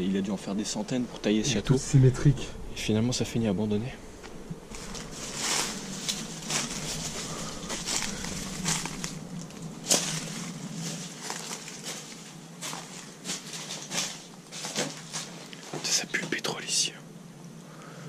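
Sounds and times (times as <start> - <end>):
footsteps crunching over debris: 4.2 - 16.0.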